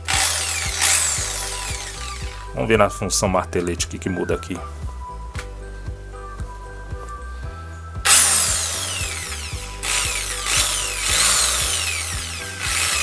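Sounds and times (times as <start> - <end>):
impact drill running with whine: 0.0 - 2.5, 8.0 - 13.0.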